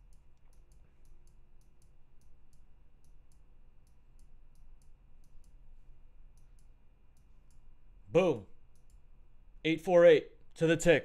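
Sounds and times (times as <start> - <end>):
computer mouse clicking: 0.0 - 7.8, 8.6 - 9.1.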